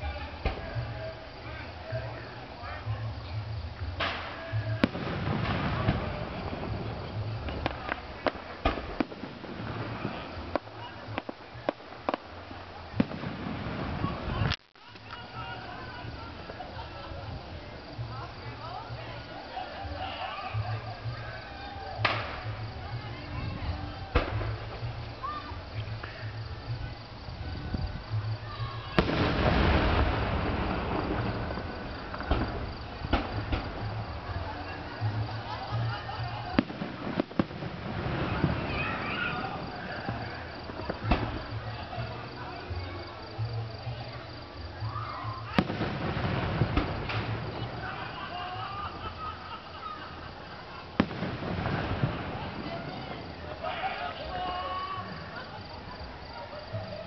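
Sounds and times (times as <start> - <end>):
fireworks bangs: 0.0 - 1.3, 3.9 - 16.9, 22.0 - 26.8, 28.8 - 41.8, 45.4 - 49.4, 50.1 - 54.5
steady background noise: 0.0 - 57.0.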